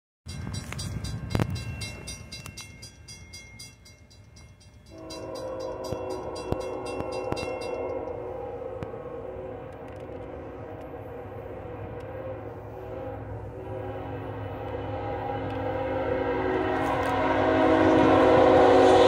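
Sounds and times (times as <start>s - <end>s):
crossing bell ringing rapidly: 0.3s - 8.5s
locomotive horn chord: 4.9s - 19.0s.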